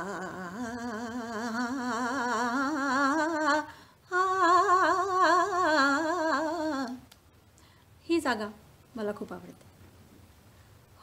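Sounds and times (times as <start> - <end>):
woman singing: 0.0 - 7.2.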